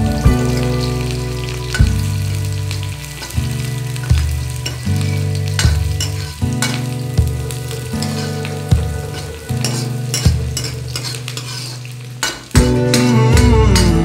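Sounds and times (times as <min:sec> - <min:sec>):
background music with low notes: 0:00.0 - 0:14.0
onions sizzling in hot oil: 0:00.0 - 0:14.0
ladle stirring: 0:03.1 - 0:14.0.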